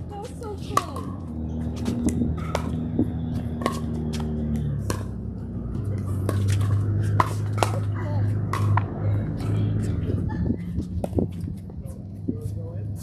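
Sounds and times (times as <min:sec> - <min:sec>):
paddles hitting plastic ball: 0:06.0 - 0:09.0.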